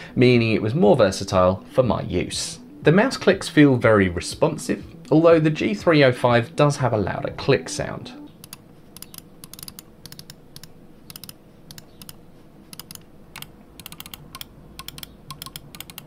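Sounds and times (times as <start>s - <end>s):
mouse buttons clicking: 8.4s - 16.0s.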